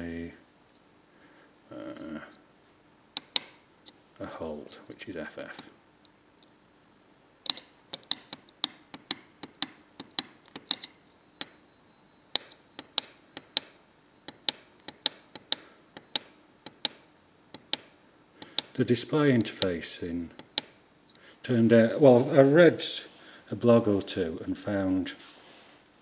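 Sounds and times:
push-button switches clicking: 0:03.2 - 0:03.6, 0:07.4 - 0:11.5, 0:12.3 - 0:18.8, 0:19.4 - 0:20.7.

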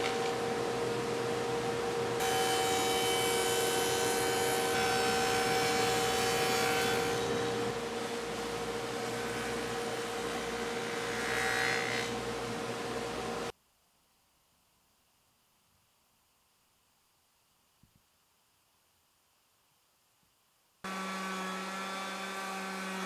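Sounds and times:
table saw cutting wood: 0:02.0 - 0:13.5, 0:20.9 - 0:23.0
router cutting wood: 0:02.2 - 0:07.8, 0:09.0 - 0:12.2, 0:20.9 - 0:23.0.

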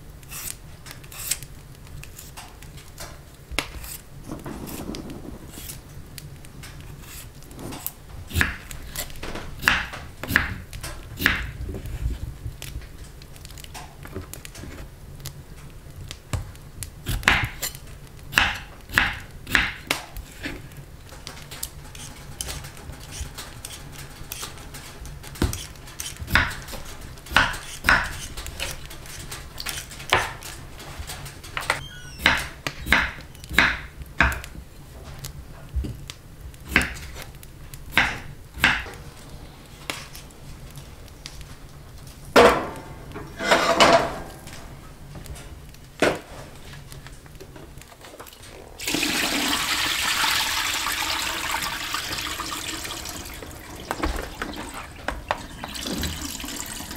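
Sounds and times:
utensils knocking on dishes: 0:21.1 - 0:34.4.

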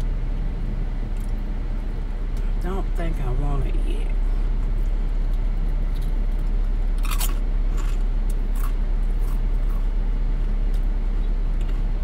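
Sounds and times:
low car cabin rumble: 0:00.0 - 0:12.0
person crunching chips: 0:05.2 - 0:09.9.

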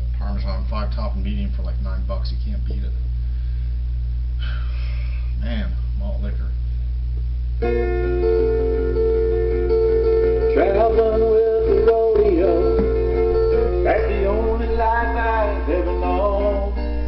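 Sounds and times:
steady low hum: 0:00.0 - 0:17.0
sustained instrumental chords: 0:07.6 - 0:17.0
person singing: 0:10.4 - 0:17.0.

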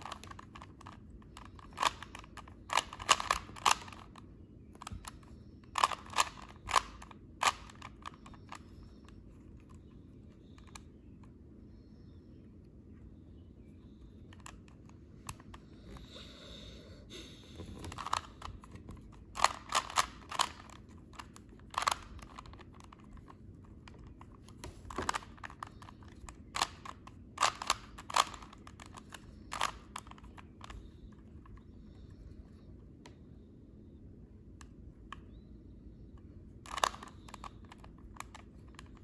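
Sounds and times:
plastic puzzle cube clacking: 0:00.0 - 0:10.9, 0:14.2 - 0:16.0, 0:17.6 - 0:32.4, 0:36.6 - 0:39.0.

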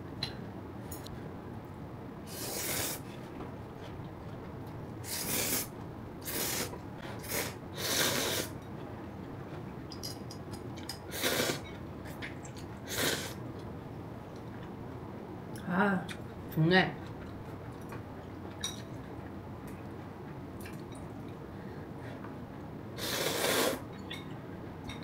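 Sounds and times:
person slurping noodles: 0:02.3 - 0:03.0, 0:05.1 - 0:08.5, 0:11.1 - 0:11.6, 0:12.9 - 0:13.4, 0:23.0 - 0:23.8.

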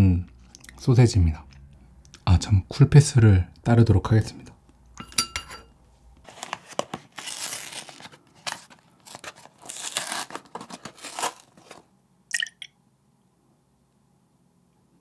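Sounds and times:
carton paper crinkling and tearing: 0:06.2 - 0:11.9.

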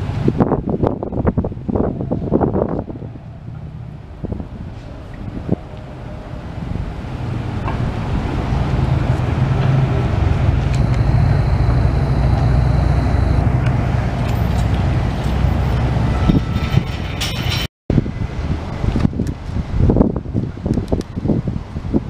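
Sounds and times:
vehicle engine rumble: 0:00.0 - 0:21.9
faint high whine: 0:10.7 - 0:14.8.

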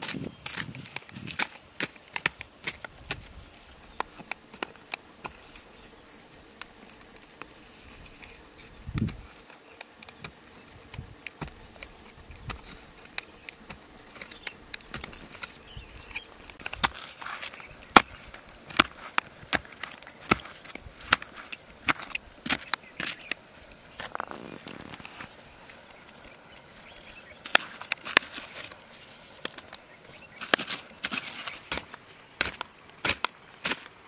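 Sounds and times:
hand pick digging stony soil: 0:00.0 - 0:34.0.

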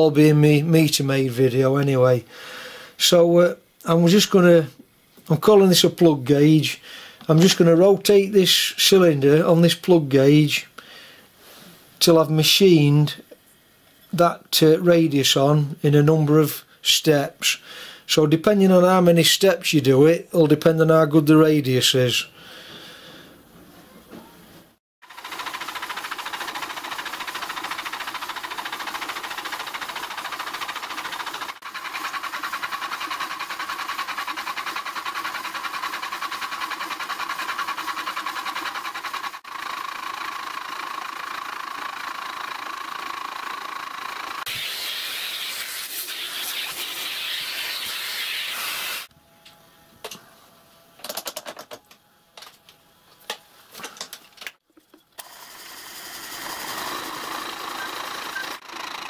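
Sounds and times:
machine whine: 0:55.2 - 0:59.0.

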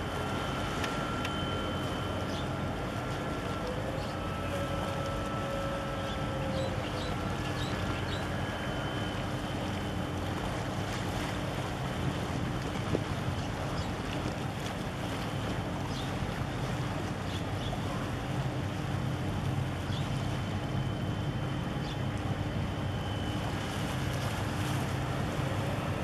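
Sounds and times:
ship engines droning: 0:00.0 - 0:26.0.

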